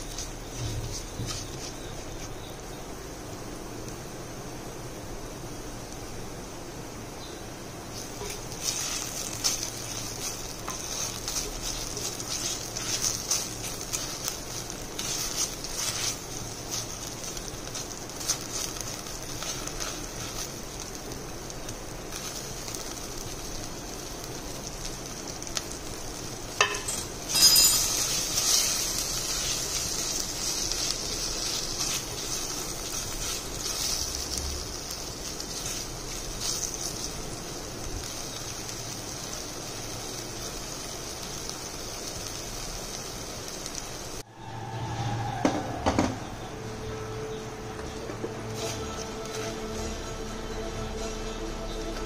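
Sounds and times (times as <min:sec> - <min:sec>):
onions sizzling in hot oil: 0:00.0 - 0:47.0, 0:47.7 - 0:52.0
spatula scraping a pan: 0:08.0 - 0:20.6, 0:27.4 - 0:34.1.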